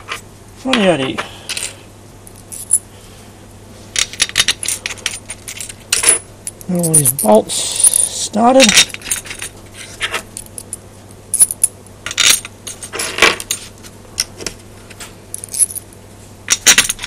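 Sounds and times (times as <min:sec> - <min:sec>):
steel bolts clinking and rattling: 0:16.5 - 0:17.0.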